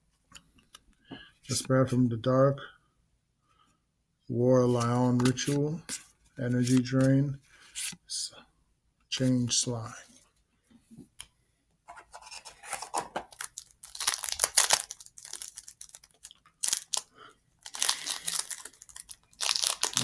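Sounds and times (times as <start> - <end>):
foil wrapper tearing and crinkling: 13.3 - 20.0.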